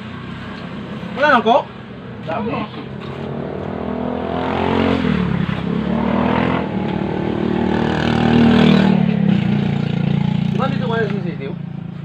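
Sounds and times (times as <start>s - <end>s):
vehicle engine revving: 2.6s - 11.4s.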